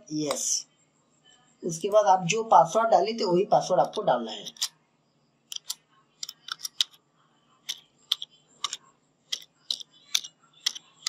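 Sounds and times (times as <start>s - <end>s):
keyboard keystrokes clicking: 5.5s - 6.9s, 7.7s - 10.9s.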